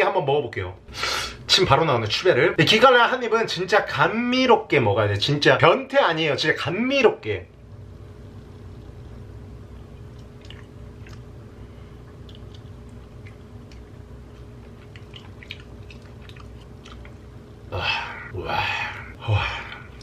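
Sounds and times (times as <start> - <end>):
man chewing: 9.7 - 20.0
wet mouth clicks: 10.0 - 11.3, 12.1 - 17.2
man sighing breathily: 17.7 - 20.0.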